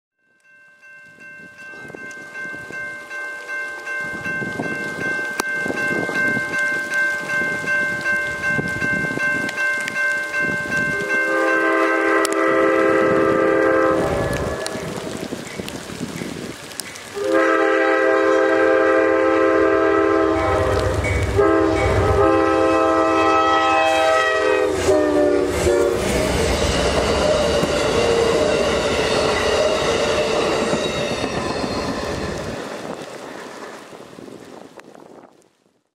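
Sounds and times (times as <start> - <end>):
train rumble: 1.0 - 35.4
train horn blasts: 10.9 - 15.2, 17.2 - 32.4.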